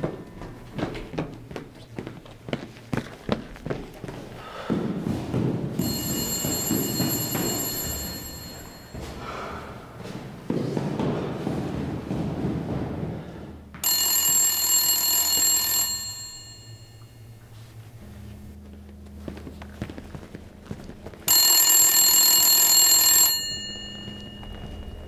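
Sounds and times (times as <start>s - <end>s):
payphone bell ringing: 5.8s - 9.2s, 13.8s - 17.5s, 21.3s - 25.0s.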